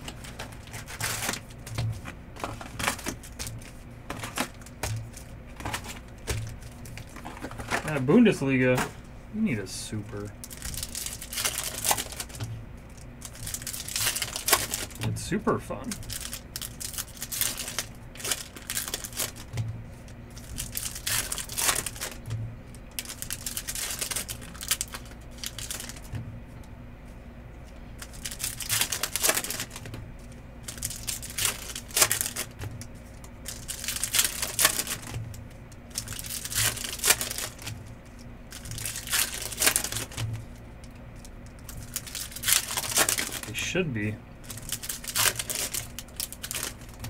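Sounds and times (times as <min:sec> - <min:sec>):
card pack wrappers tearing: 0:00.0 - 0:01.8, 0:02.4 - 0:19.5, 0:20.3 - 0:22.3, 0:22.9 - 0:26.1, 0:28.0 - 0:40.3, 0:41.2 - 0:47.0
cards shuffled by hand: 0:00.0 - 0:09.0, 0:09.9 - 0:15.2, 0:23.0 - 0:26.2, 0:27.6 - 0:40.5, 0:41.2 - 0:43.7, 0:44.4 - 0:47.0.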